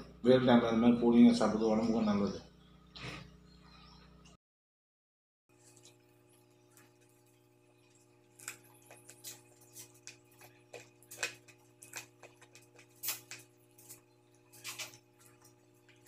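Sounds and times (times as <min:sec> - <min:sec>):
steady low hum: 0:00.0 - 0:04.4
person chewing wetly: 0:07.8 - 0:16.0.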